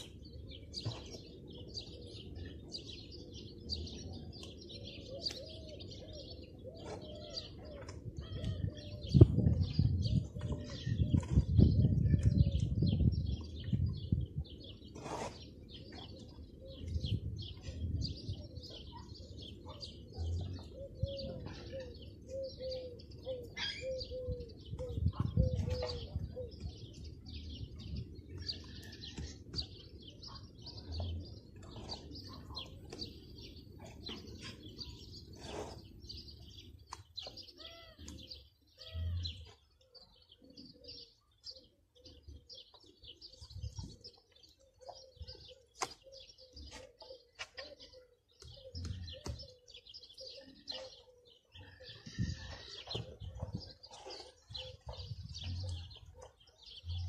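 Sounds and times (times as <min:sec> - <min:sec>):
small birds chirping: 0:00.0 - 0:57.0
dove cooing: 0:16.6 - 0:26.8, 0:43.6 - 0:57.0.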